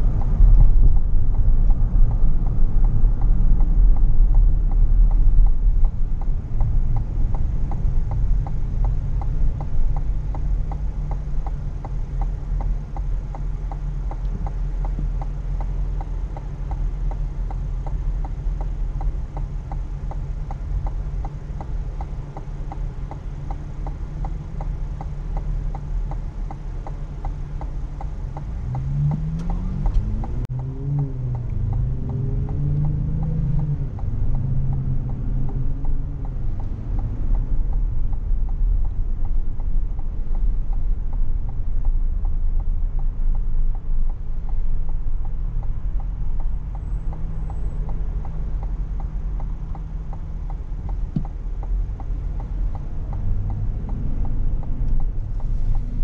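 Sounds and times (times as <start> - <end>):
car engine idling: 0.0 - 56.0
engine and road noise: 0.0 - 56.0
turn signal ticking: 0.0 - 56.0.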